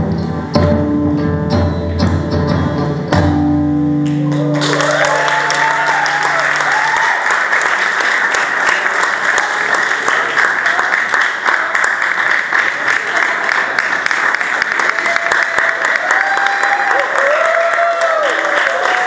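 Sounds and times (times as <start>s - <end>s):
audience applause: 4.0s - 19.0s
audience calls: 4.1s - 19.0s.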